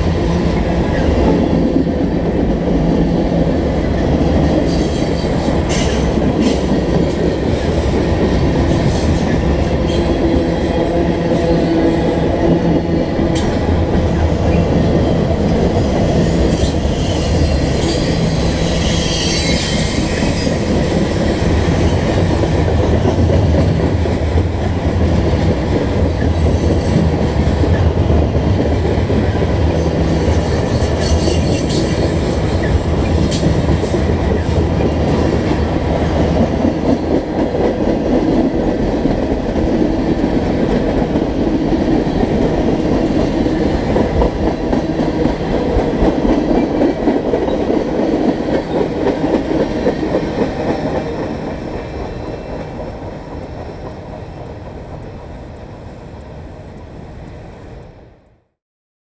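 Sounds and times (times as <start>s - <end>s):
steel wheels rumbling on rail: 0.0s - 58.3s
high wheel squeals: 16.6s - 20.8s.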